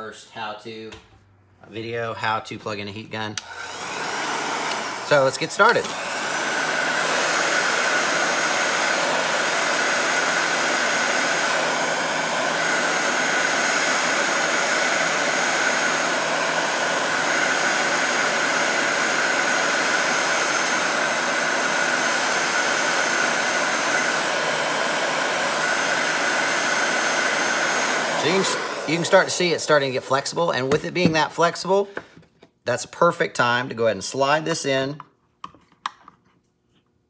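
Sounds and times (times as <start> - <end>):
heat gun blowing air: 3.4 - 32.0.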